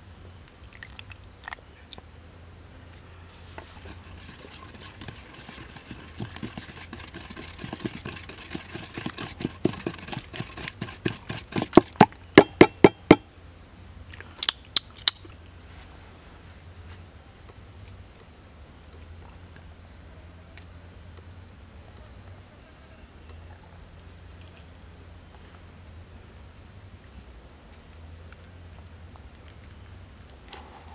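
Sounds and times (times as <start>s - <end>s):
high-pitched insect drone: 2.5s - 14.0s, 15.3s - 30.9s
pestle pounding in wooden mortar: 3.7s - 13.3s
sharp knocks: 5.7s - 13.3s.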